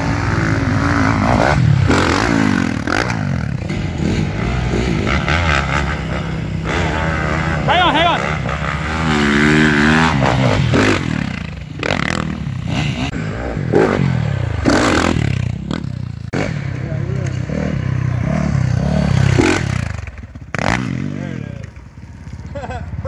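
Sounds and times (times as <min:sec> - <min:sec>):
dirt bike engine revving: 0:00.0 - 0:23.0.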